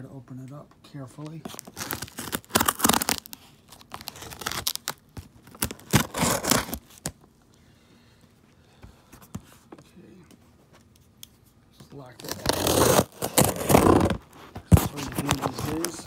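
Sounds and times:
packing tape ripping: 0:01.4 - 0:07.1, 0:12.2 - 0:14.2.

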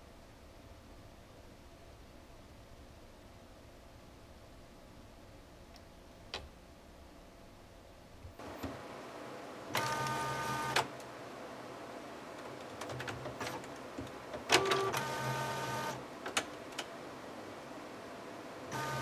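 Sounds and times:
printer motor whirring: 0:09.7 - 0:10.9, 0:12.4 - 0:16.0, 0:18.7 - 0:19.0
printer mechanism clicks: 0:12.7 - 0:15.1.

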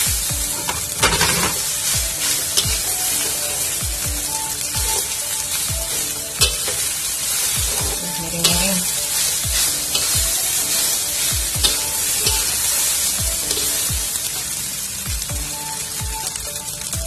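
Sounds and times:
rice sizzling in a wok: 0:00.0 - 0:17.0
metal spatula scraping a wok: 0:00.5 - 0:03.8, 0:04.5 - 0:14.6
spatula clicking against wok: 0:06.4 - 0:06.8.

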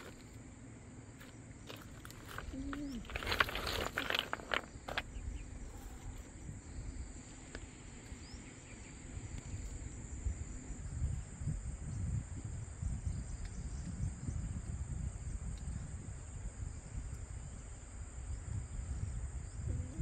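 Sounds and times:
insects buzzing: 0:00.0 - 0:20.0
wind rumble on microphone: 0:01.6 - 0:20.0
tree branches clicking and rustling: 0:01.7 - 0:05.2.

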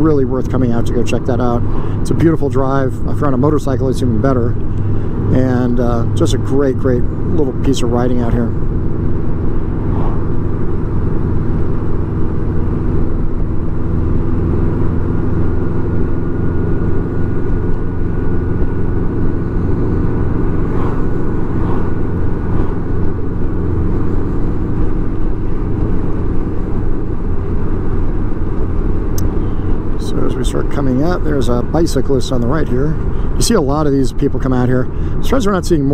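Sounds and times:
motorcycle engine drone: 0:00.0 - 0:35.9
wind and road rush: 0:00.0 - 0:35.9
faint thin whine: 0:12.7 - 0:34.5.

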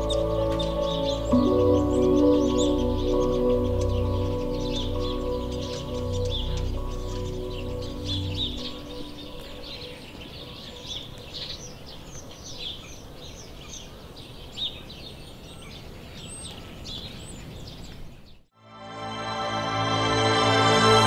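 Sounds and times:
background music: 0:00.0 - 0:11.0, 0:18.6 - 0:21.0
steady outdoor hiss: 0:00.0 - 0:14.6
small birds chirping: 0:00.0 - 0:18.5.

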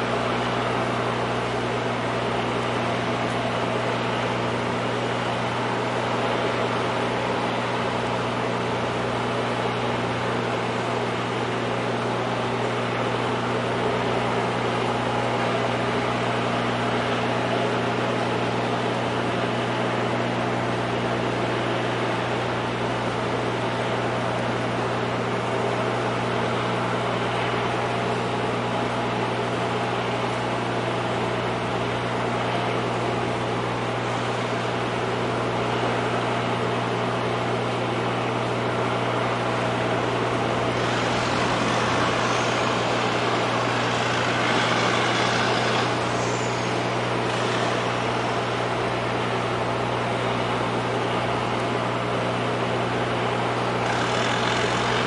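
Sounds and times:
low engine drone: 0:38.4 - 0:51.0.

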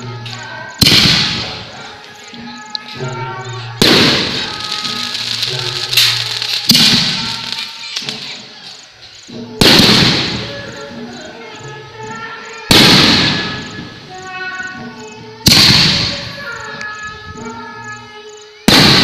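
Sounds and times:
fireworks bangs: 0:00.0 - 0:08.6, 0:09.3 - 0:11.0, 0:12.6 - 0:14.8, 0:15.4 - 0:17.0, 0:18.6 - 0:19.0
music: 0:00.0 - 0:19.0.

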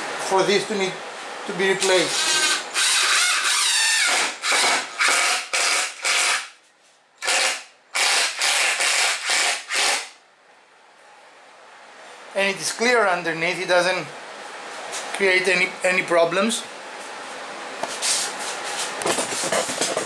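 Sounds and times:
drill driving bolt into wood: 0:02.1 - 0:06.5, 0:07.2 - 0:10.1.

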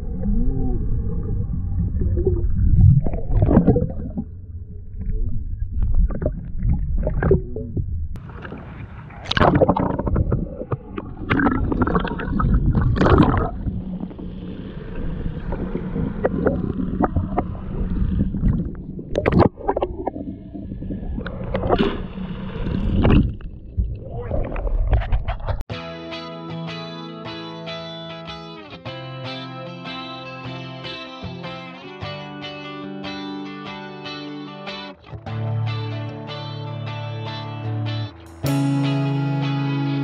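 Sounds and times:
boat engine rumble: 0:00.0 - 0:25.7
water around hull: 0:00.0 - 0:25.7.

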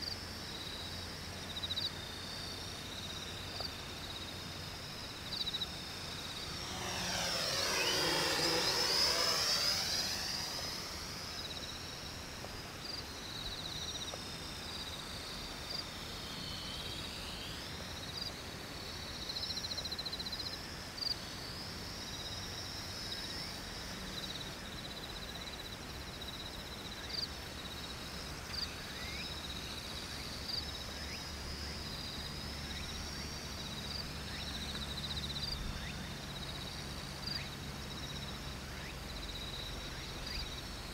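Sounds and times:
insects trilling: 0:00.0 - 0:40.9
drone propeller whine: 0:00.9 - 0:18.7
low hum: 0:04.4 - 0:12.4.

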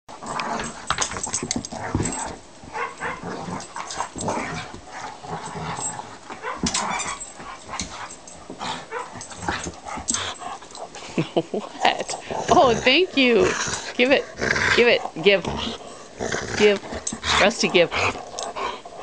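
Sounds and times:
dog chewing and tearing: 0:00.2 - 0:11.0
dog vocal noises: 0:00.2 - 0:19.0.

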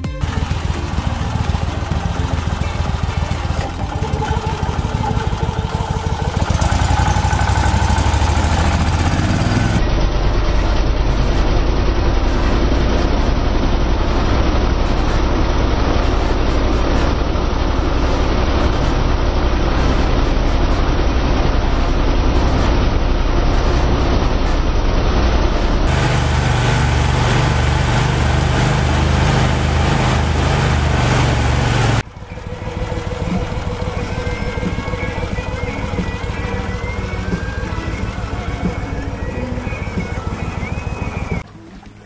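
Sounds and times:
mud motor engine running: 0:00.0 - 0:42.0
hissing wash of spray: 0:25.9 - 0:32.0.

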